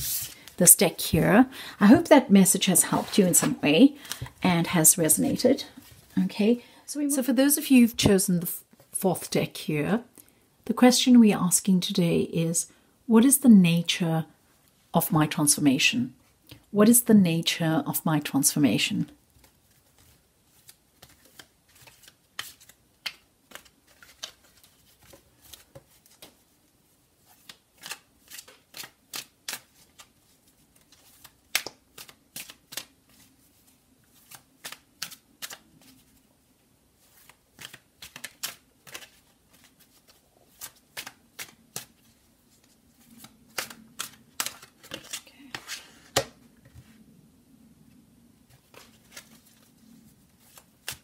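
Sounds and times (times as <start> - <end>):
cards being shuffled: 0.0 - 0.7, 19.4 - 26.4, 27.2 - 36.2, 37.0 - 46.9, 48.5 - 51.0.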